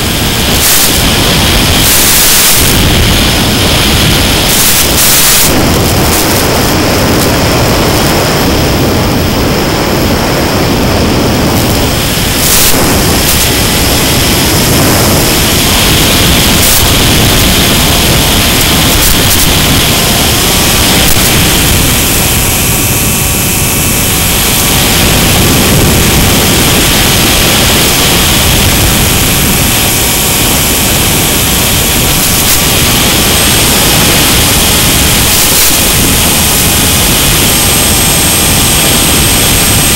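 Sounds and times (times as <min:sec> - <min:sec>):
faint motor whine: 0:00.0 - 0:39.9
wind and propeller noise: 0:00.0 - 0:39.9.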